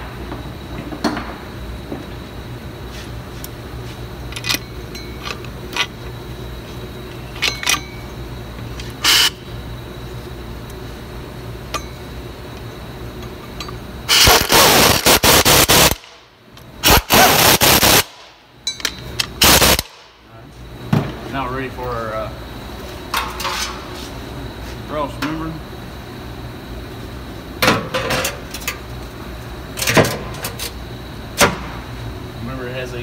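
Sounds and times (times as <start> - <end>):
low shop hum: 0.0 - 33.0
air tool running in bursts: 9.0 - 9.4, 14.1 - 16.2, 16.8 - 18.3, 19.4 - 20.0.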